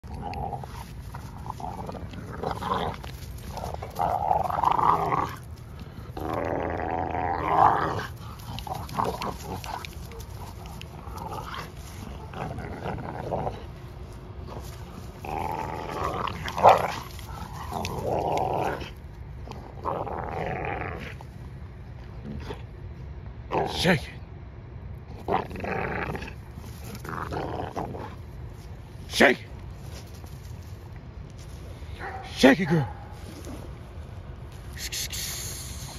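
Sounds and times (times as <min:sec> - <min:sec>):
dogs growling: 0:00.0 - 0:21.4, 0:25.1 - 0:28.8.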